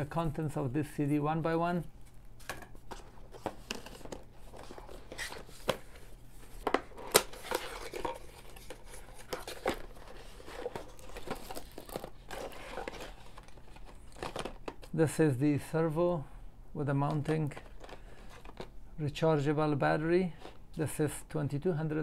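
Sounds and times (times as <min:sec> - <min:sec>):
cardboard boxes rustling: 0:02.8 - 0:14.7.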